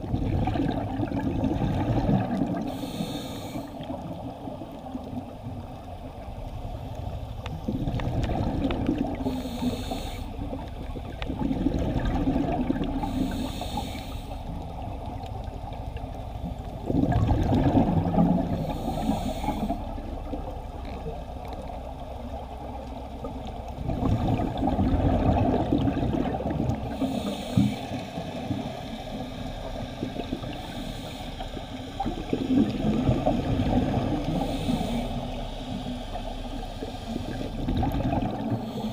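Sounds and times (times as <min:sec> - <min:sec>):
regulator hissing inhalation: 0:02.7 - 0:03.8, 0:09.2 - 0:10.4, 0:13.0 - 0:14.5, 0:18.5 - 0:19.8, 0:26.9 - 0:29.5, 0:30.5 - 0:32.3, 0:34.3 - 0:37.6, 0:38.5 - 0:38.9
bubbling exhalation: 0:16.8 - 0:18.6.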